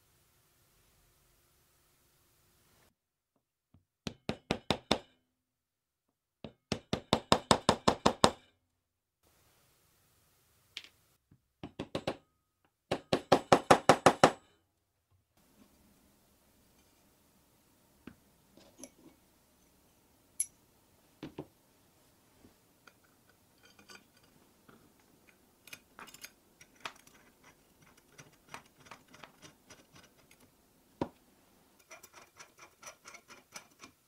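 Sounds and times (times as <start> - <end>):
metal rods clicking and tapping: 25.2 - 30.5, 31.8 - 34.0.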